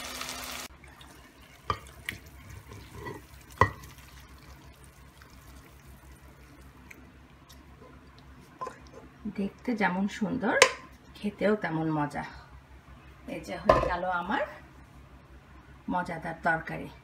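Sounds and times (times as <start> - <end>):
curry plopping into dish: 0.8 - 5.9.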